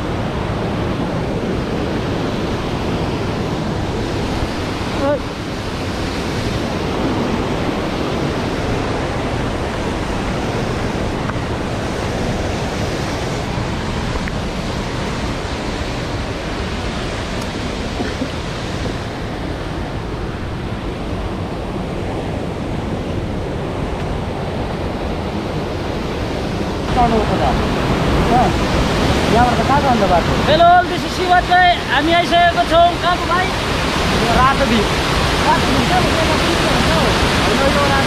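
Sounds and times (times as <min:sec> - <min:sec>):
stream rushing over boulders: 0:00.0 - 0:38.0.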